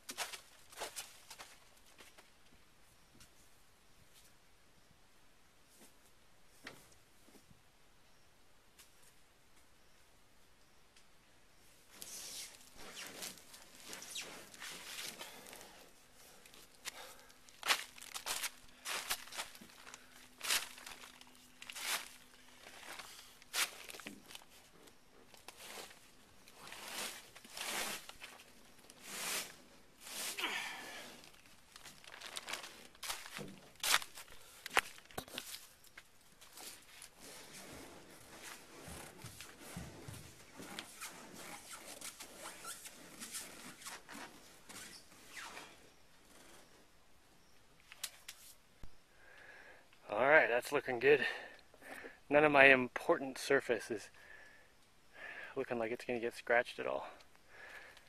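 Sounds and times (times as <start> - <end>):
footsteps on grass and tarp: 11.9 - 24.7, 25.3 - 45.4
small crackles and creaks: 11.9 - 29.0, 31.0 - 46.9, 47.8 - 49.0.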